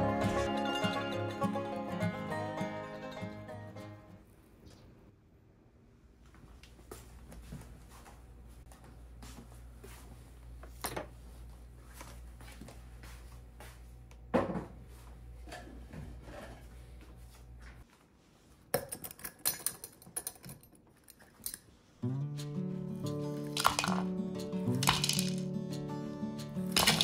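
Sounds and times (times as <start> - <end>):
glass jars knocking: 23.6 - 24.1.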